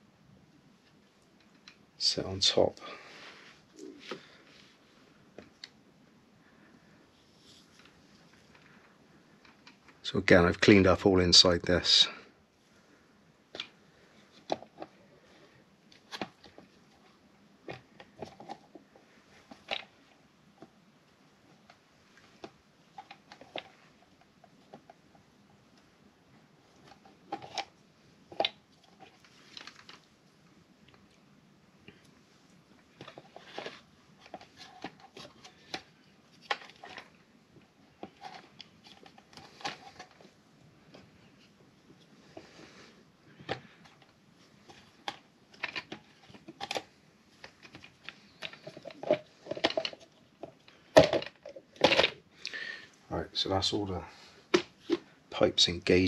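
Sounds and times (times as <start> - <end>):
plastic parts clicking and tapping: 13.5 - 15.0, 15.9 - 20.7, 21.5 - 25.1, 26.7 - 30.1, 32.9 - 40.3, 43.3 - 52.2.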